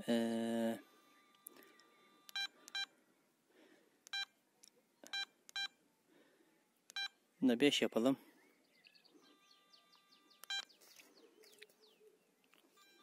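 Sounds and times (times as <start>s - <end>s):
short high beeps: 2.2s - 2.9s.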